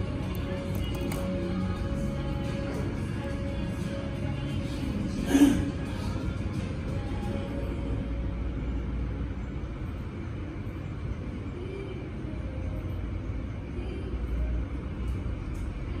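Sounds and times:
low rumbling background noise: 0.0 - 16.0.

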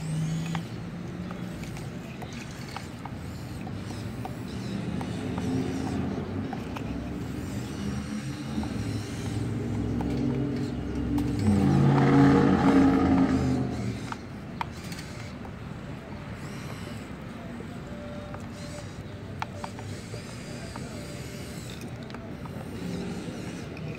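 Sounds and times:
small electric motors whirring: 0.0 - 23.9.

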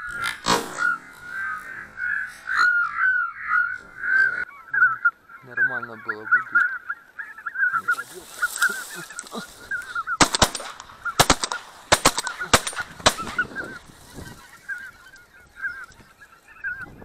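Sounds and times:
geese honking: 0.0 - 17.0
shotgun shots: 10.2 - 13.6.

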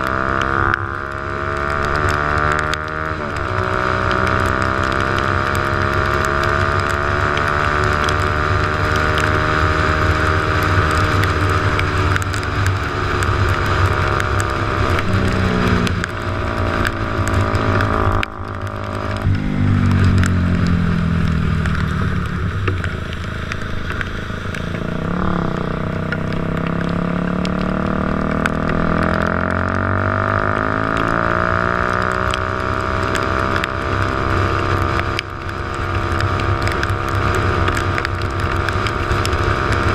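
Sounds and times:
dirt bike engine revving: 24.6 - 33.3.

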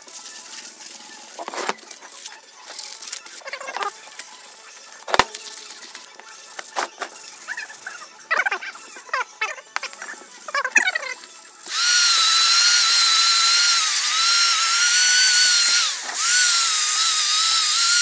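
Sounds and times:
metal pieces scraping and clinking: 1.4 - 2.8, 6.6 - 7.2.

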